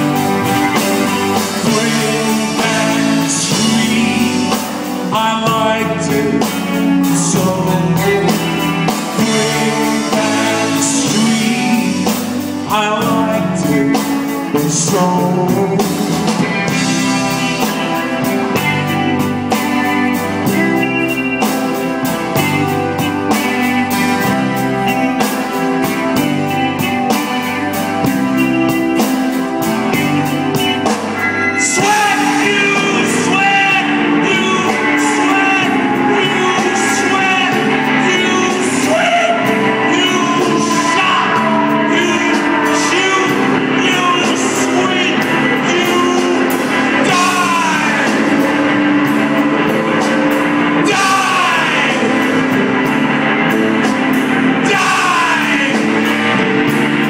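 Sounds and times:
man singing: 0:00.0 - 0:18.7, 0:31.6 - 0:52.9, 0:54.1 - 0:56.4
drums: 0:00.0 - 0:57.0
electric guitar: 0:00.0 - 0:57.0.

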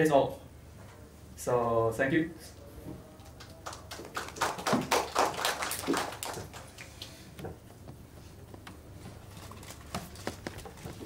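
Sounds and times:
audience applause: 0:03.2 - 0:07.1.

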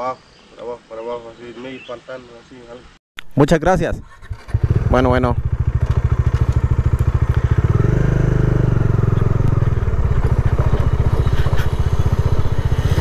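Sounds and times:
motorcycle engine revving: 0:04.1 - 0:13.0.

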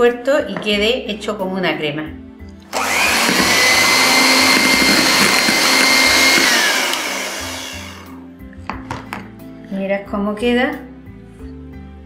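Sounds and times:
electric hand mixer whining: 0:02.7 - 0:08.2.

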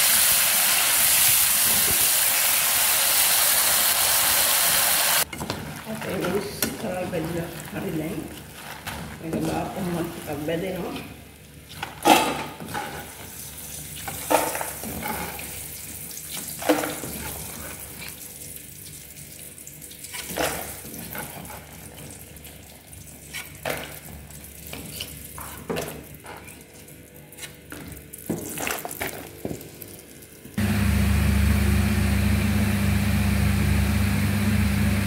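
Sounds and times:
oil sizzling: 0:00.0 - 0:05.3.

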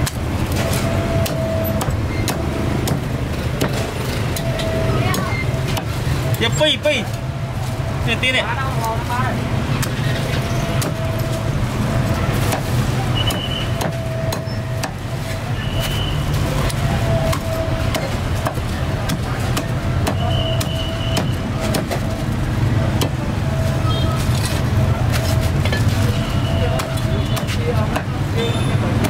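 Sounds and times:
street traffic rumble: 0:00.0 - 0:29.0
cleaver chopping on wooden block: 0:01.2 - 0:03.8, 0:12.5 - 0:12.7, 0:13.3 - 0:15.0, 0:17.3 - 0:22.1, 0:26.8 - 0:28.2.

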